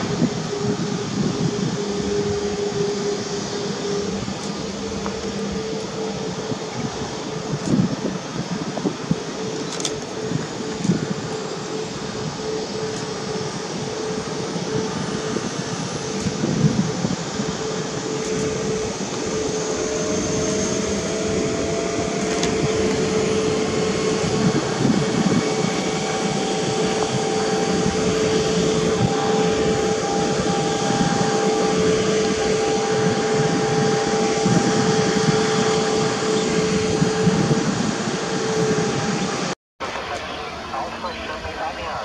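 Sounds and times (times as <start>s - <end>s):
jet engines idling: 0.0s - 42.0s.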